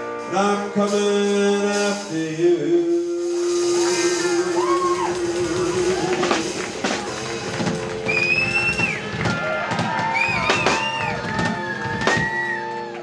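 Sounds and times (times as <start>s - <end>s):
drum and cymbal hits: 0.0s - 12.9s
country rock band playing: 0.0s - 13.0s.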